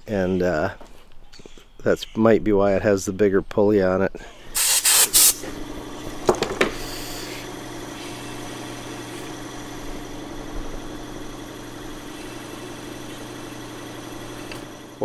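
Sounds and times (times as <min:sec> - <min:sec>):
sewing machine motor humming: 0:05.2 - 0:15.0.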